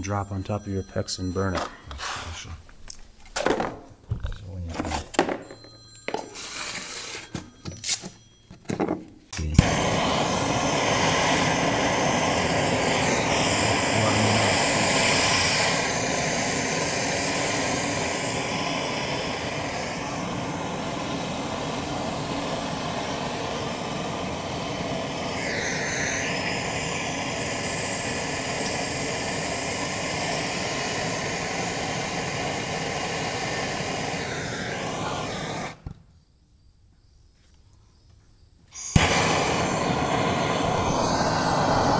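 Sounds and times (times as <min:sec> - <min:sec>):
gas torch hissing: 0:01.9 - 0:02.6, 0:09.4 - 0:35.9, 0:38.7 - 0:41.9.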